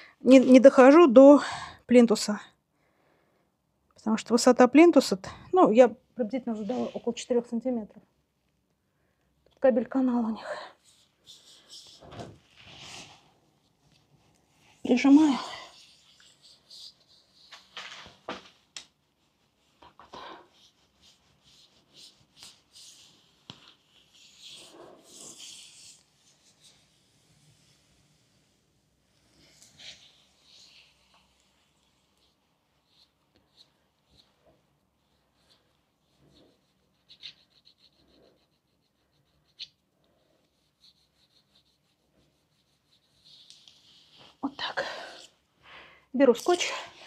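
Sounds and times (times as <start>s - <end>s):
hand rubbing plastic on wall: 10.8s - 28.4s.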